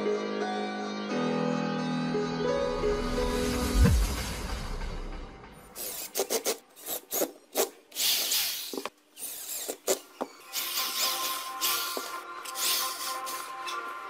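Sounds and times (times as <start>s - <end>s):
power drill driving screws: 8.0s - 13.8s.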